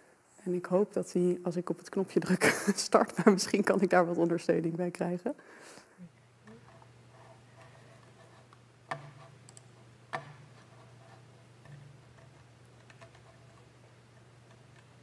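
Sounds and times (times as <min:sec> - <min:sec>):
faint low hum: 0:00.0 - 0:15.0
sharp clicks: 0:08.9 - 0:10.4.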